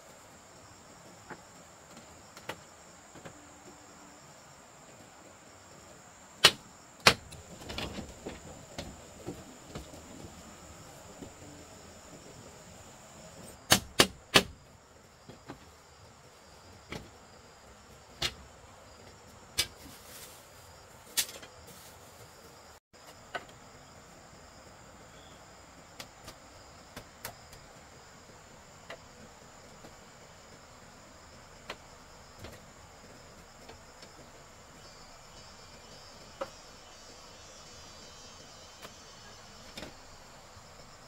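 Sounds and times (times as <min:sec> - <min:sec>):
insects chirping: 0:00.0 - 0:41.0
sharp knocks on bamboo: 0:06.4 - 0:09.9, 0:13.7 - 0:14.6.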